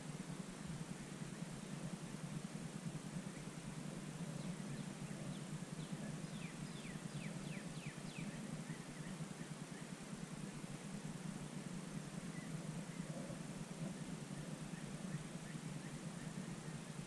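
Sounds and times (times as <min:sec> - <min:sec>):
steady low hum: 0:00.0 - 0:17.0
small bird singing: 0:04.2 - 0:10.0, 0:12.2 - 0:17.0.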